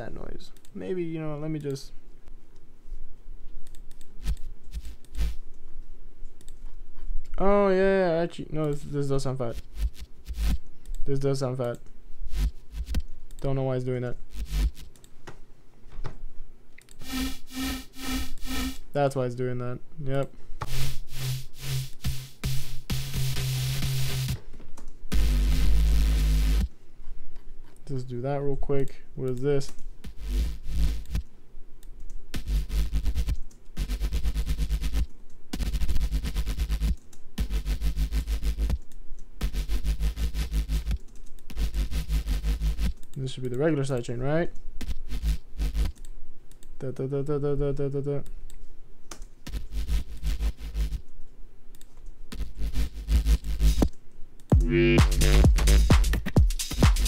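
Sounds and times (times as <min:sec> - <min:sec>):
buzzing synth bass loop: 0:04.2 - 0:05.4, 0:09.5 - 0:10.6, 0:12.3 - 0:13.0, 0:14.3 - 0:14.9, 0:17.0 - 0:18.8, 0:20.7 - 0:24.4, 0:25.1 - 0:26.7, 0:30.1 - 0:31.2, 0:32.4 - 0:38.8, 0:39.4 - 0:43.0, 0:44.9 - 0:46.0, 0:49.5 - 0:51.0, 0:52.4 - 0:53.9, 0:54.5 - 0:57.0
electronic drums with low kick: 0:09.5 - 0:10.6, 0:20.7 - 0:24.4, 0:25.1 - 0:26.7, 0:32.4 - 0:38.8, 0:39.4 - 0:43.0, 0:52.4 - 0:53.9, 0:54.5 - 0:57.0
thick synth bass note: 0:54.6 - 0:56.2.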